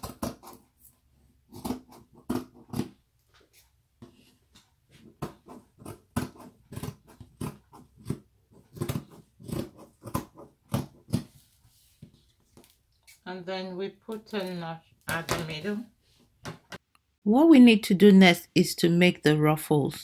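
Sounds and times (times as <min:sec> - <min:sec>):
scissors snipping fabric: 0:00.0 - 0:03.0, 0:05.1 - 0:11.3.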